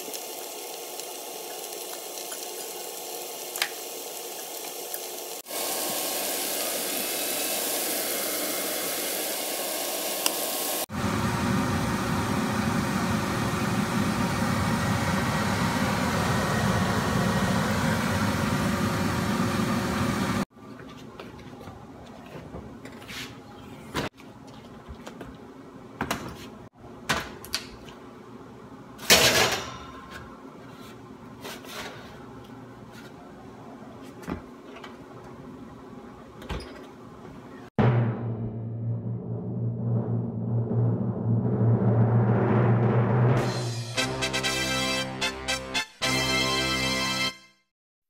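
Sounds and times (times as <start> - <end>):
food sizzling in a frying pan: 0.0 - 10.9
sauce boiling and bubbling: 0.0 - 20.4.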